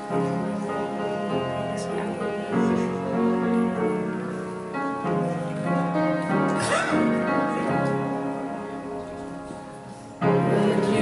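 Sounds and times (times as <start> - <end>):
keyboard playing held chords: 0.0 - 11.0
congregation singing a hymn: 10.2 - 11.0.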